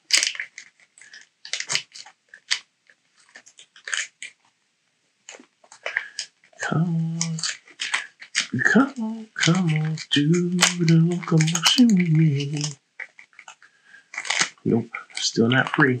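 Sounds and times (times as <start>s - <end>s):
plastic packaging crinkling: 0.0s - 4.6s, 5.2s - 16.0s
person speaking: 5.8s - 12.8s, 14.2s - 16.0s.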